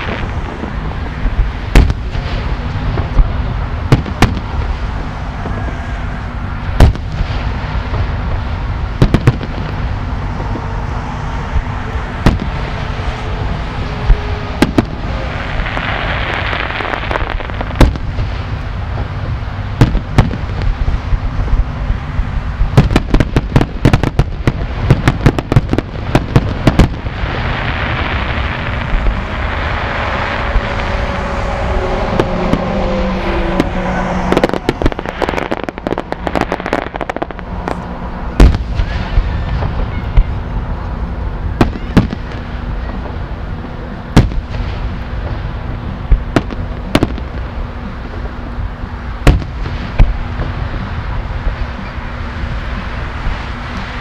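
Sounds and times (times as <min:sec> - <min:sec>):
firework booms: 0:00.0 - 0:05.9, 0:06.6 - 0:10.7, 0:11.5 - 0:13.1, 0:13.7 - 0:40.4, 0:41.5 - 0:43.2, 0:44.1 - 0:45.4, 0:46.0 - 0:48.4, 0:49.2 - 0:50.9
firework bangs: 0:00.0 - 0:54.0
firework crackling hiss: 0:00.0 - 0:54.0
steady low hum: 0:00.0 - 0:54.0
falling firework whistles: 0:27.4 - 0:37.8.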